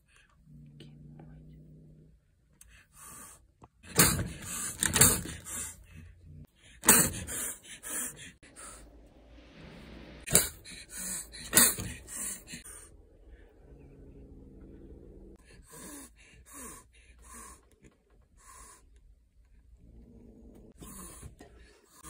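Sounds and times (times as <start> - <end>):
kitten hissing: 10.2 - 12.9.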